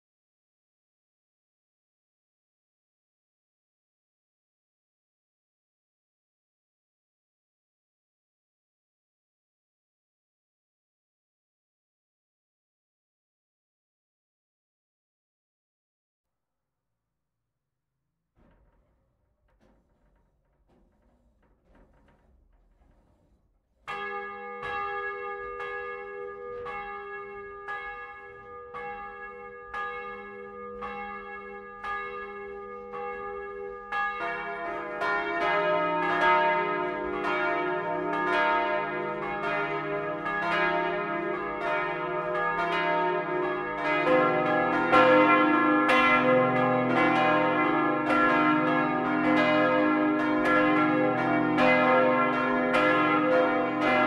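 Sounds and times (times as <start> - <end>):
church bells swinging: 23.9 - 54.0.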